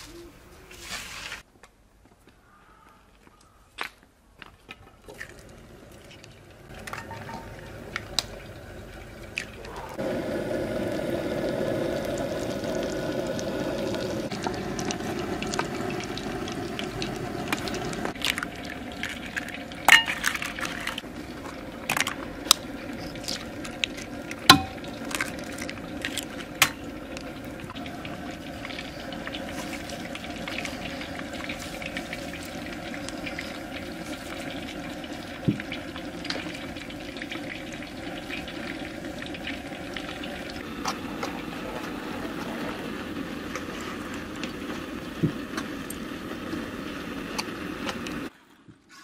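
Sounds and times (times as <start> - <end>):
butter sizzling in a pan: 10.0 - 48.3
eggs cracking into a bowl: 17.5 - 21.0, 21.8 - 27.3.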